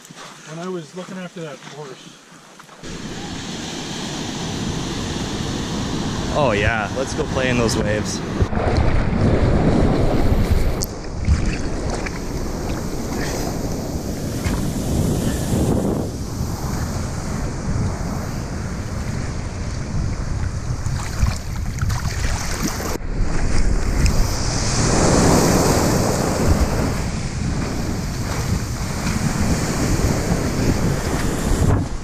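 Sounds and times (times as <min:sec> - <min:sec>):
surf breaking and rushing: 0:02.8 - 0:32.0
wind buffeting microphone: 0:02.8 - 0:32.0.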